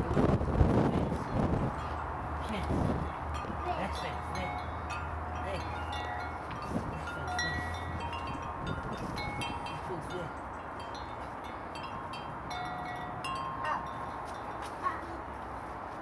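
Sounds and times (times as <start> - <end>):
wind chime ringing: 3.1 - 14.7.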